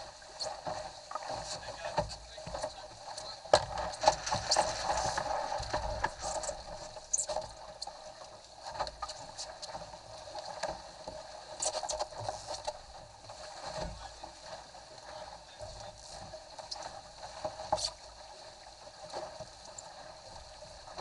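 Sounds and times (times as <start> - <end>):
water rushing along a hull: 0.0 - 21.0
knocks and slaps from hull: 3.5 - 6.3.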